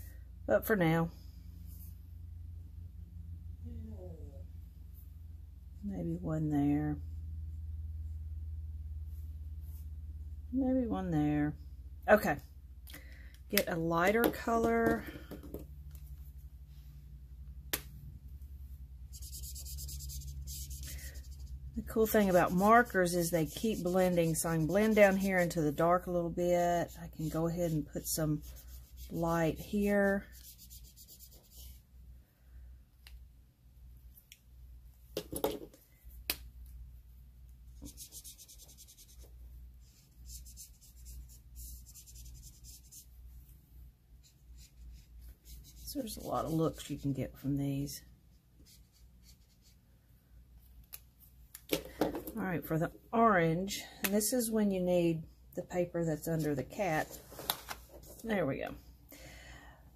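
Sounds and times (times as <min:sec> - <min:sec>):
marker nib scratching on paper: 0:19.1 - 0:26.1, 0:37.8 - 0:43.1, 0:44.2 - 0:47.0, 0:48.6 - 0:49.8.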